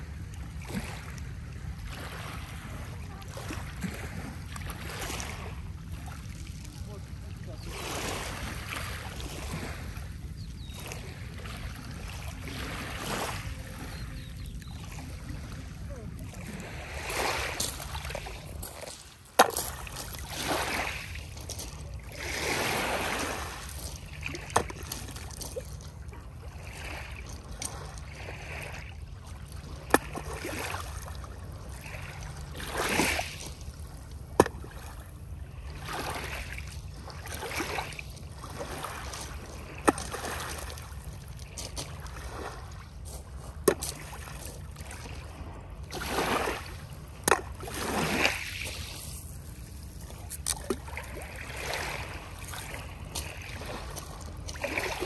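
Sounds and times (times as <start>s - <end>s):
small waves washing: 0.0s - 55.0s
steady low rumble: 48.5s - 54.6s.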